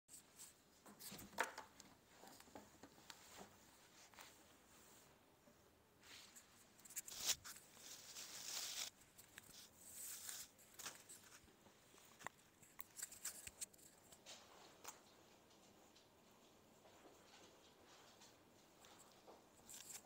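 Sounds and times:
fabric rustling: 0:06.0 - 0:14.8.

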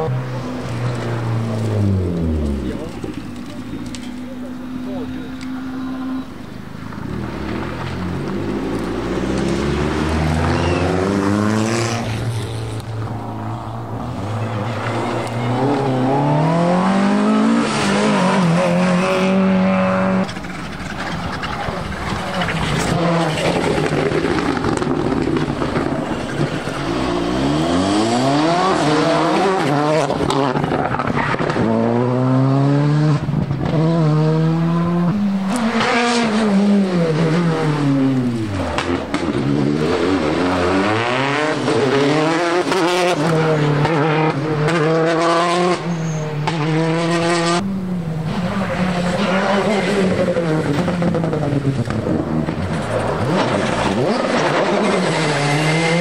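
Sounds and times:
rally cars accelerating hard: 0:00.0 - 0:56.0.

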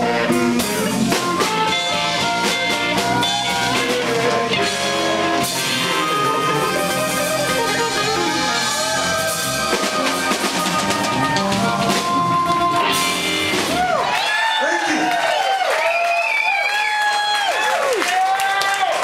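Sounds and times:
harmonica: 0:00.0 - 0:13.6
electric bass: 0:00.0 - 0:14.1
electric guitar: 0:00.0 - 0:14.2
drum kit: 0:00.0 - 0:14.4.

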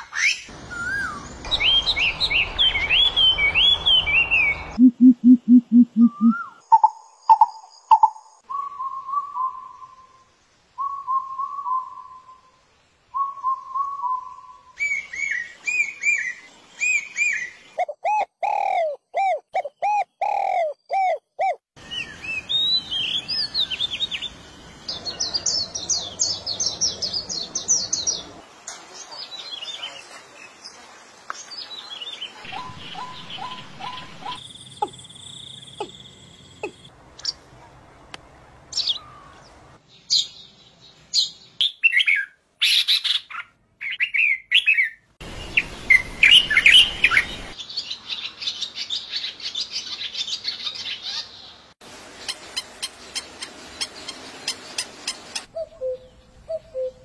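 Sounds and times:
bird chirps whistles and trills: 0:00.0 - 0:24.0, 0:41.2 - 0:47.6, 0:55.4 - 0:57.0
swallow twittering: 0:00.8 - 0:08.2
dove cooing: 0:04.8 - 0:06.4.

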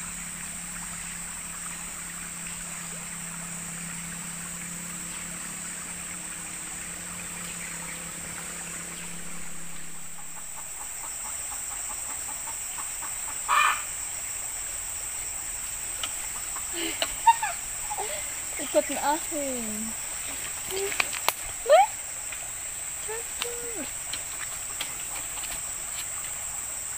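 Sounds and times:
high-pitched insect drone: 0:00.0 - 0:26.9
short bird calls: 0:08.9 - 0:13.9.

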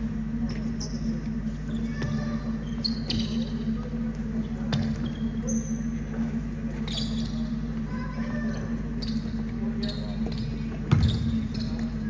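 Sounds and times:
steady low hum: 0:00.0 - 0:12.0
sneakers squeaking on court: 0:00.5 - 0:03.8, 0:04.4 - 0:06.0, 0:06.7 - 0:07.7, 0:08.5 - 0:12.0
basketball bouncing: 0:10.3 - 0:11.8.

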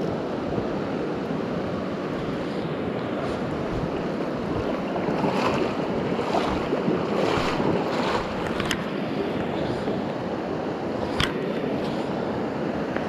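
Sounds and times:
river water rushing: 0:00.0 - 0:13.0
wind buffeting microphone: 0:02.1 - 0:08.8.

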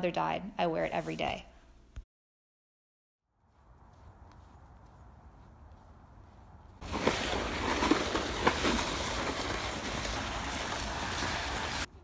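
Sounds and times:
trolley wheels rattling over bricks: 0:06.8 - 0:11.9.

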